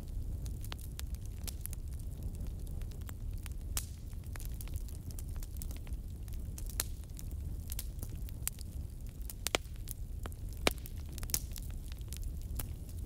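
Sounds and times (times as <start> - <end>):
low fire rumble: 0.0 - 13.0
wood fire crackling: 0.0 - 13.0.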